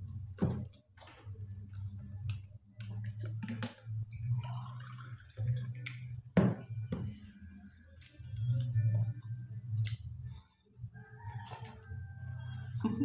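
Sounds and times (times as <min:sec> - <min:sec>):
wet chewing and mouth smacks: 0:09.8 - 0:10.2, 0:11.4 - 0:12.8.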